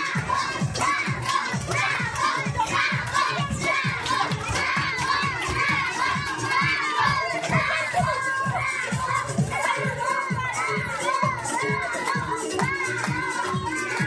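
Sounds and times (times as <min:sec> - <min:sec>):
audience clapping along: 0:00.0 - 0:07.7, 0:11.9 - 0:14.0
children shouting and cheering: 0:00.0 - 0:14.0
music with steady beat: 0:00.0 - 0:14.0.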